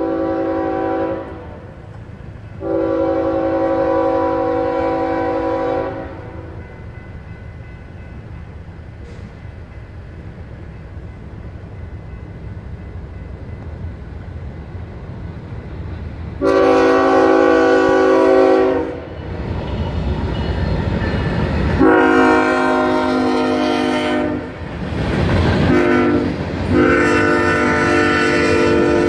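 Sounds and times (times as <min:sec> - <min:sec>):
locomotive air horn blasts: 0:00.0 - 0:01.8, 0:02.6 - 0:06.6, 0:16.4 - 0:19.2, 0:21.8 - 0:24.6, 0:25.7 - 0:29.0
diesel locomotive rumble: 0:00.0 - 0:29.0.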